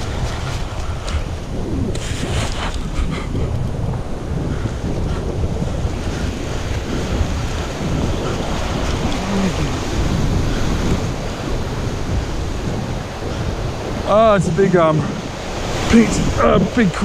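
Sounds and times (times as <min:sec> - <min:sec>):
waves breaking against cliff: 0:00.0 - 0:17.0
wind buffeting microphone: 0:00.0 - 0:17.0.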